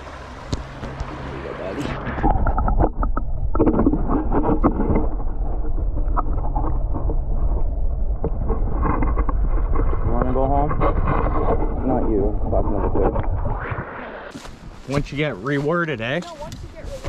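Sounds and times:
muffled underwater rumble: 0.0s - 15.5s
small underwater clicks and knocks: 0.4s - 1.2s, 2.0s - 11.8s.

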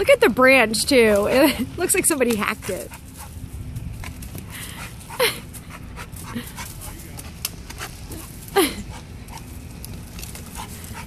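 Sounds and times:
twigs rattling: 0.8s - 11.0s
dog panting: 1.8s - 3.4s, 4.0s - 9.7s, 10.3s - 11.0s.

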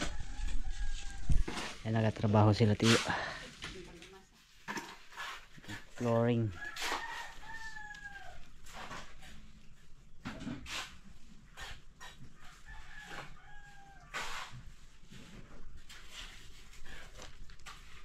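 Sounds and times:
rooster crowing: 0.0s - 1.8s, 6.5s - 9.0s, 12.4s - 14.6s.

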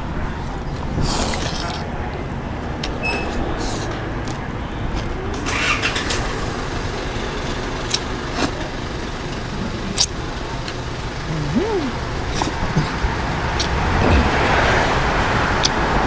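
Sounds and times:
road traffic rumble: 0.0s - 16.0s
slurping noodles: 1.0s - 1.9s.

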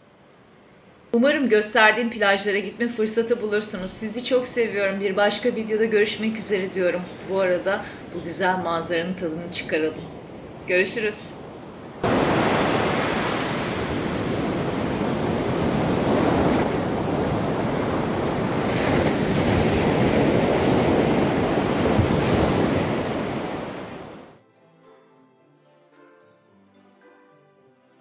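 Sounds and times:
surf breaking on beach: 12.0s - 24.4s.

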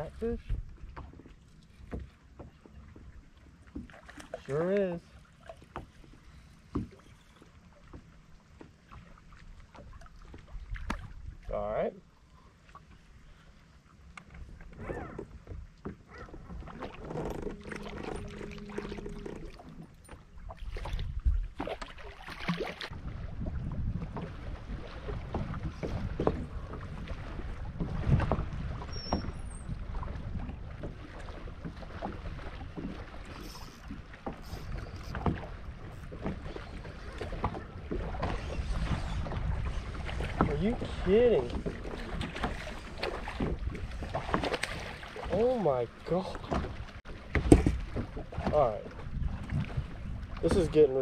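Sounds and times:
water noise: 0.0s - 51.0s
wind: 0.0s - 51.0s
low hum: 16.6s - 20.5s.

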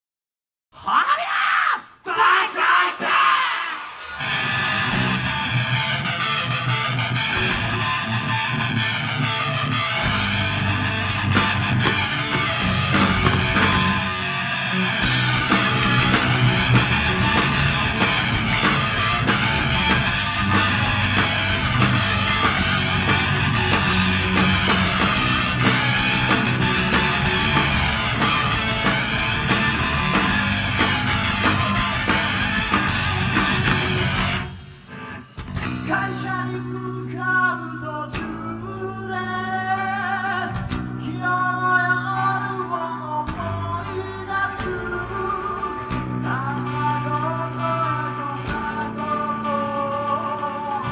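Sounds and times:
heavy metal band playing: 2.4s - 50.9s
sweeping guitar effect: 4.0s - 50.9s
person singing: 35.6s - 50.9s.

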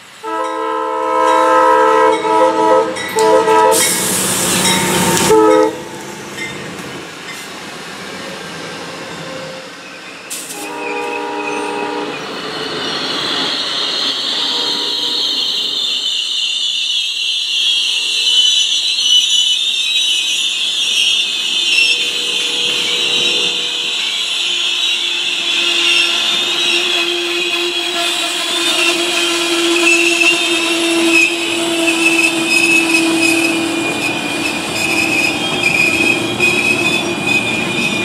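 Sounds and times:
locomotive passing rush: 0.0s - 16.0s, 20.9s - 38.0s
train wheel squeal: 0.0s - 38.0s
train horn: 0.2s - 4.1s, 4.8s - 6.1s, 10.5s - 12.4s, 14.3s - 16.1s, 21.6s - 37.9s.

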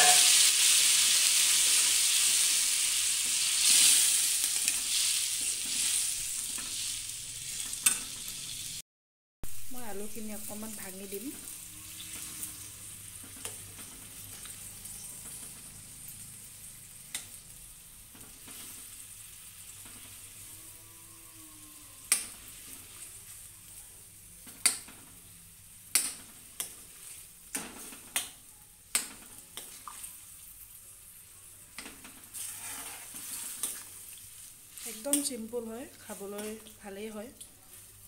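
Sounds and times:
curry sizzling softly: 9.5s - 38.0s.

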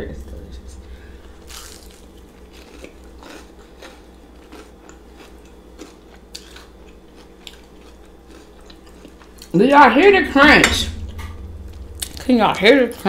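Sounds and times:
crunchy chewing: 1.4s - 9.6s.

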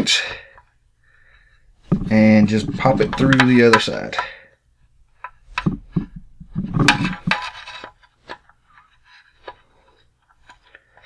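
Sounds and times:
hard plastic clicking and scraping: 1.8s - 4.4s, 5.2s - 11.0s.

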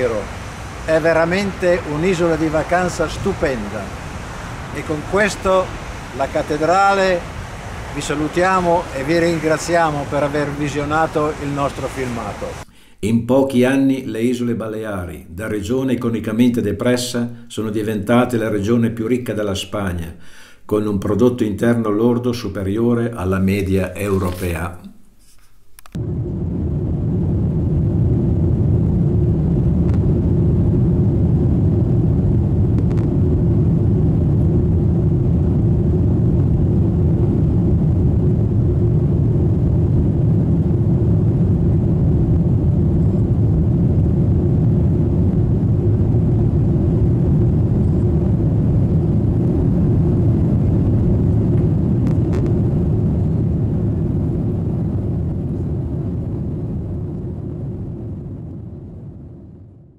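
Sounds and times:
jet airliner cabin rumble: 0.0s - 12.7s, 25.9s - 59.8s.

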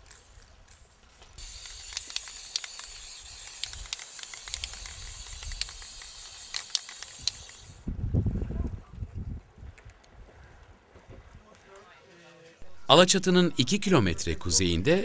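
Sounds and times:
aerosol spray hissing: 1.4s - 7.8s
small ticks: 1.4s - 7.8s.

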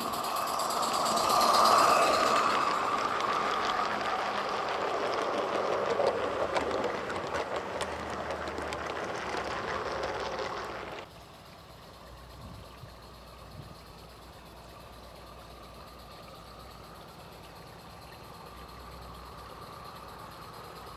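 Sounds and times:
model train wheels clicking on track: 0.0s - 20.9s.

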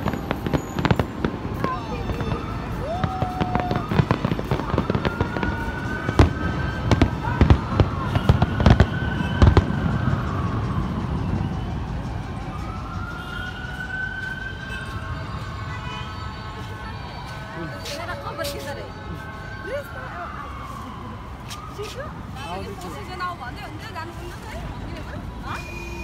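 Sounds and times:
fireworks whistling: 0.0s - 13.7s, 25.4s - 26.0s
fireworks bangs and crackles: 0.0s - 26.0s.

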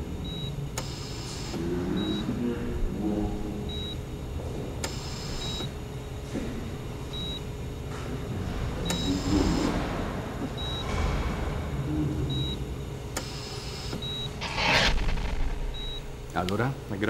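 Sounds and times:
steady low rumble: 14.4s - 16.5s.

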